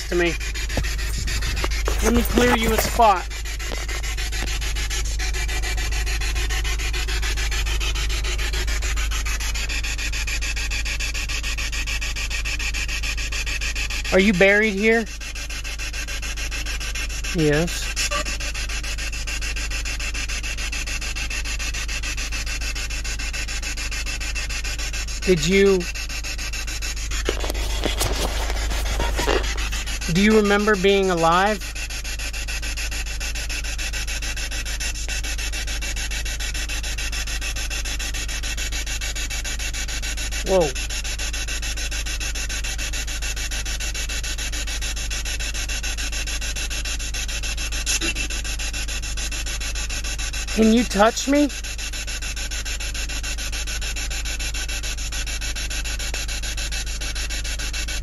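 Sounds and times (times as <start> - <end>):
low hum: 0.0 - 5.4
fast even pulsing: 0.0 - 11.0, 14.1 - 43.6, 44.2 - 56.6
wind buffeting microphone: 0.7 - 3.0
short voice-like call: 18.0 - 18.5.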